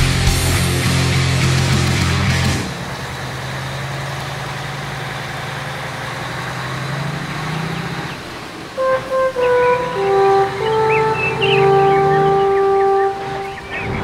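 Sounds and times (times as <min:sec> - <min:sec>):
truck diesel engine running: 0:00.0 - 0:13.2
music with sustained notes: 0:08.8 - 0:14.0.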